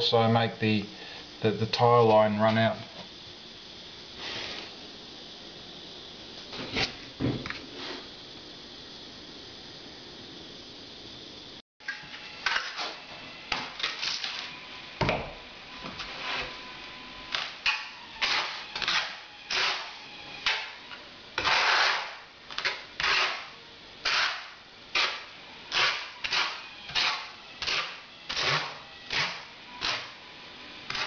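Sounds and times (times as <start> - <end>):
trowel scraping tile adhesive: 21.4 - 22.1.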